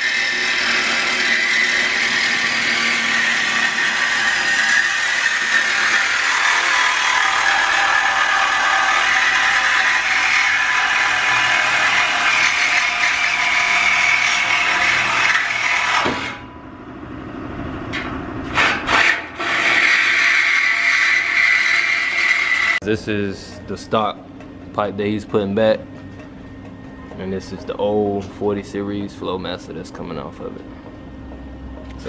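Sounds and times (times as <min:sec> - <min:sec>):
reciprocating saw cutting metal pipe: 0:00.0 - 0:16.4, 0:18.4 - 0:22.8.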